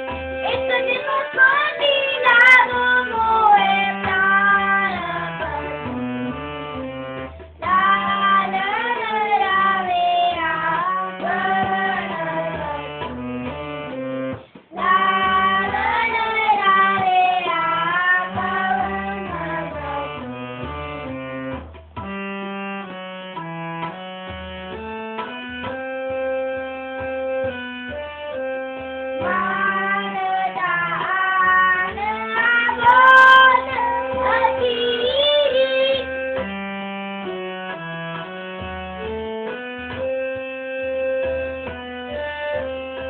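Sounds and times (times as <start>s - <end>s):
harmonium: 0.0s - 43.0s
child singing: 0.4s - 5.8s, 7.6s - 13.1s, 14.7s - 20.2s, 29.2s - 36.4s.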